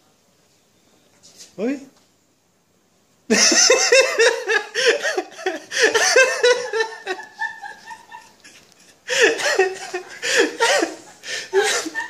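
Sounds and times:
person laughing hard: 3.3s - 12.0s.

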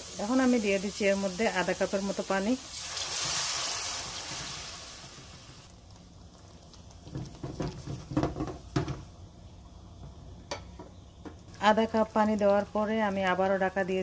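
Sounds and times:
water sizzling in hot oil: 0.0s - 9.2s.

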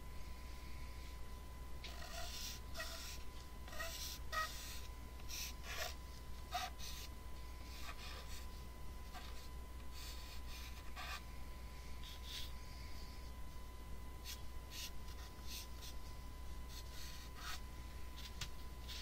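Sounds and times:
felt-tip pen scratching on paper: 1.9s - 7.1s, 9.1s - 11.2s, 14.2s - 16.0s, 16.7s - 17.6s.

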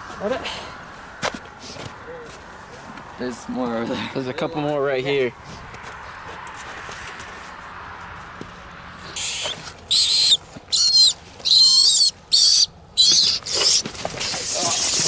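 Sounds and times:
rat squealing: 9.2s - 15.0s.

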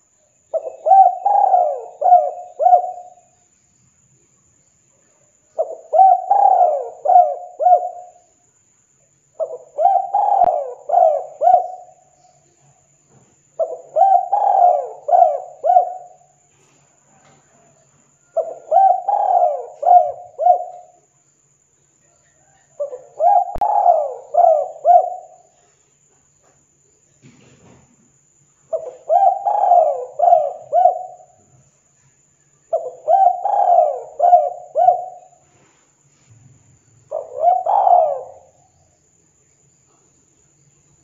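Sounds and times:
dove cooing: 0.0s - 3.3s, 5.6s - 8.2s, 9.4s - 12.2s, 13.6s - 16.4s, 17.0s - 21.0s, 22.3s - 25.7s, 28.7s - 31.5s, 32.7s - 35.5s, 37.1s - 38.7s.

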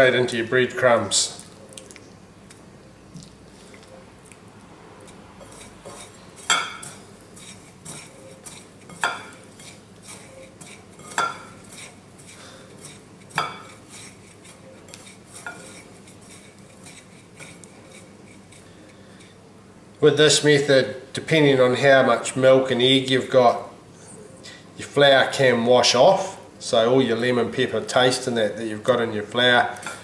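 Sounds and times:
utensil clinking on ceramic plates: 5.4s - 7.0s, 7.8s - 11.9s, 12.8s - 13.8s.

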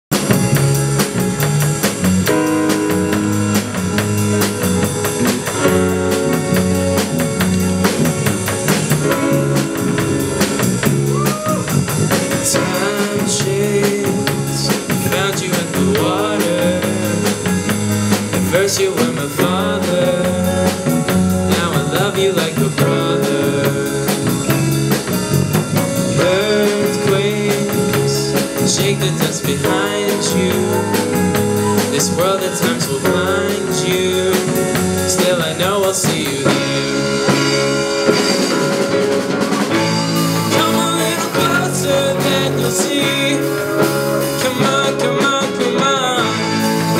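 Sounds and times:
drum kit: 0.0s - 46.9s
electric bass: 0.0s - 46.9s
keyboard: 0.0s - 46.9s
man singing: 11.1s - 25.1s, 26.0s - 46.9s.

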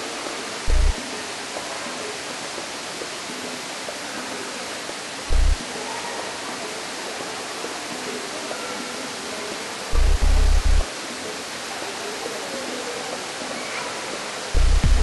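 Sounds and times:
loud low thump: 0.7s - 1.0s, 5.3s - 5.6s, 10.0s - 10.8s, 14.6s - 15.0s.

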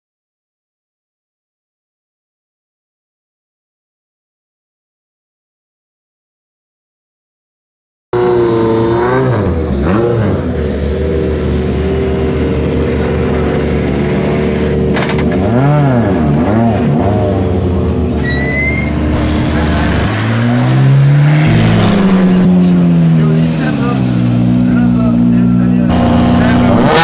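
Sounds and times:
second rally car engine revving: 8.2s - 18.0s, 18.8s - 27.0s
rally car engine at low revs: 8.2s - 18.2s, 18.9s - 27.0s.

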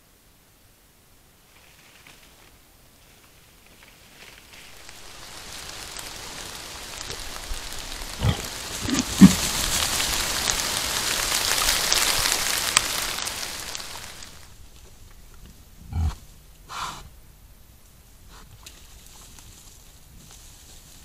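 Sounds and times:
wet patter: 4.6s - 15.0s
wild boar grunting: 8.1s - 9.8s, 15.8s - 17.1s.

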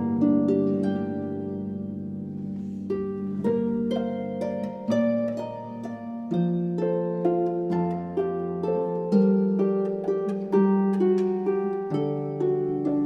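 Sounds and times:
harps plucked: 0.0s - 13.0s.

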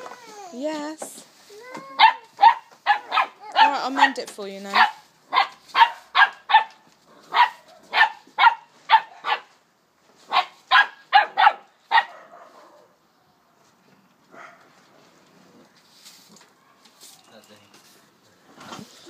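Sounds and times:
puppy barking: 2.0s - 9.5s, 10.3s - 12.9s, 14.3s - 14.7s.

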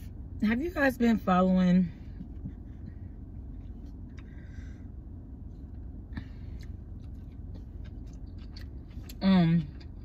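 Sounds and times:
car interior hum: 0.0s - 10.0s.

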